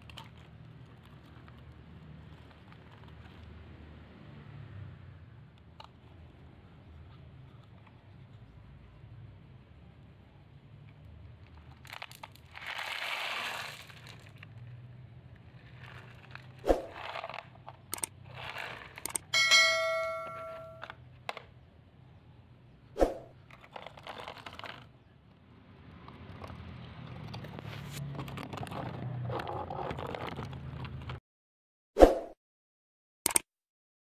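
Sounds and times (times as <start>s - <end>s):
toys rustling and scraping: 11.3s - 21.5s, 23.0s - 25.0s, 26.0s - 31.2s
metallic bell-like ding: 19.4s - 20.9s.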